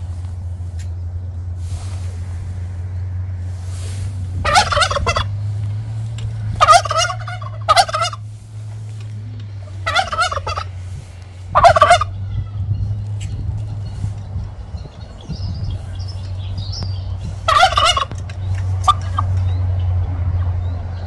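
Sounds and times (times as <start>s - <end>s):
turkey gobbling: 4.4s - 5.4s, 6.6s - 8.4s, 9.6s - 10.9s, 11.5s - 12.2s, 17.4s - 19.4s.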